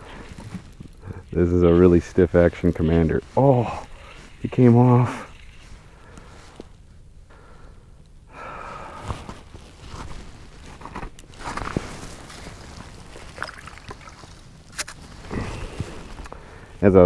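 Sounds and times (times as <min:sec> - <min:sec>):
handling of fishing gear and clothing: 0:00.0 - 0:06.8, 0:08.8 - 0:16.7.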